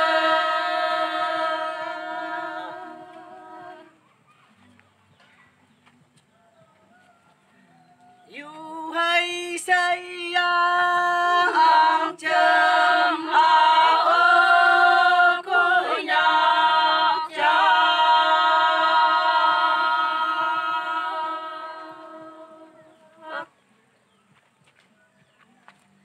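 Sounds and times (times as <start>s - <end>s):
women singing a cappella: 0.0s - 4.0s, 8.3s - 23.6s.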